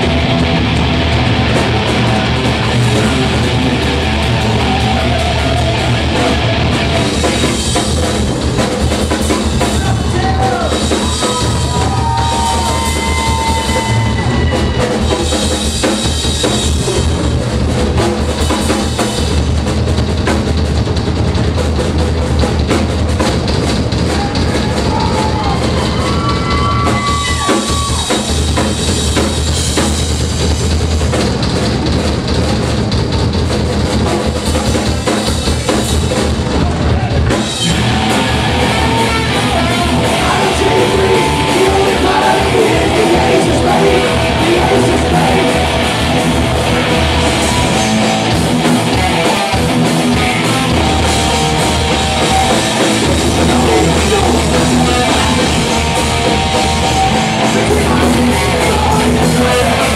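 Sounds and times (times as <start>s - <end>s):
loud rock band playing: 0.0s - 59.9s.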